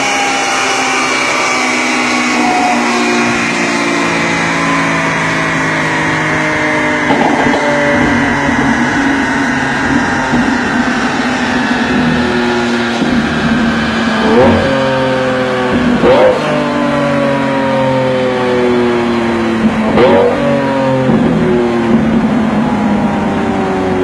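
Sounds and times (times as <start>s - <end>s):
car engine running: 0.0s - 24.0s
engine rev blip: 7.0s - 16.9s.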